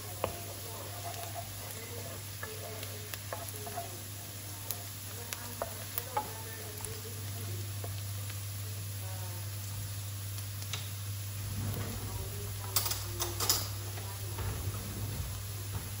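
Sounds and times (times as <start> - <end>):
onions sizzling in oil: 0.0 - 16.0
sharp crackles and pops: 9.4 - 16.0.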